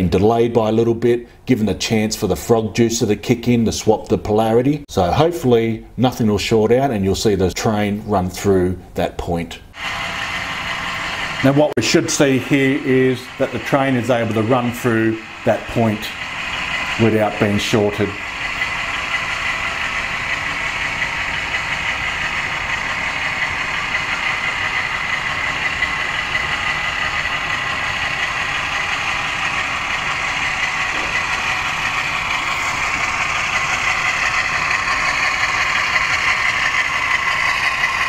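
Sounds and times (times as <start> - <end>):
model train running on track: 9.7 - 38.0.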